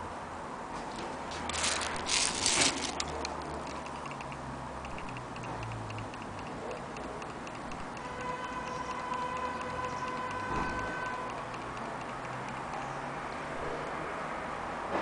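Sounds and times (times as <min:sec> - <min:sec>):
handling clatter: 0:01.0 - 0:04.2
clock escapement ticking rapidly: 0:01.5 - 0:13.7
steady ringing tone: 0:02.0 - 0:13.0.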